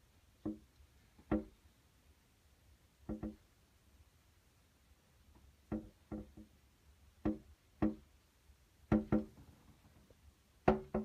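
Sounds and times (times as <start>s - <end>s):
hollow knocks on plastic bird feeder: 1.2s - 1.5s, 3.1s - 3.4s, 5.7s - 6.5s, 7.2s - 8.0s, 8.9s - 9.4s, 10.6s - 11.0s.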